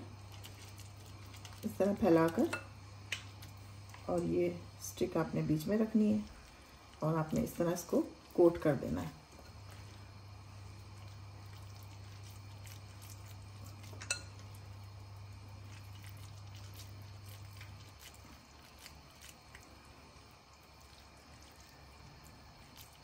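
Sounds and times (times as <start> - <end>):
low steady hum: 0.0 - 23.0.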